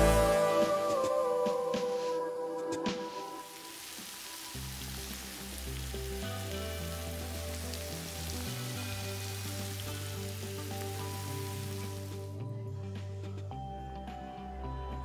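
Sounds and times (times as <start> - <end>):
background music: 0.0 - 15.0
oil sizzling in frying pan: 3.3 - 12.3.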